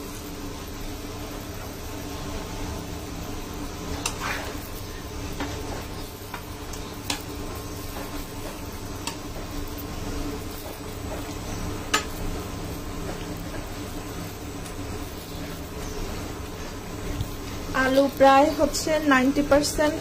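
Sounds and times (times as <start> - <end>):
steady low hum: 0.0 - 20.0
metal spatula scraping a wok: 3.9 - 6.0.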